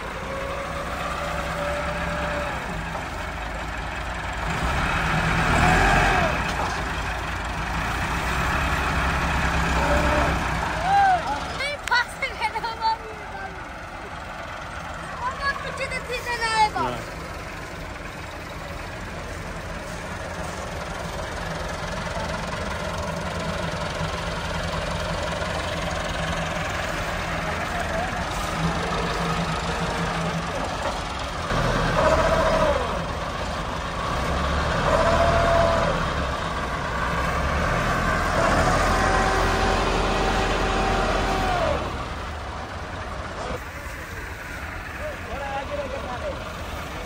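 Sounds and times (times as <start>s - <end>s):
tractor diesel engine revving: 0.0s - 47.0s.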